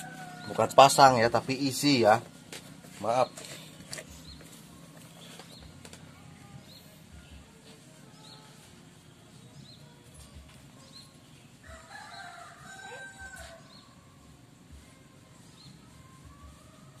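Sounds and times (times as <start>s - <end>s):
rooster crowing: 0.0s - 1.0s, 11.6s - 13.9s.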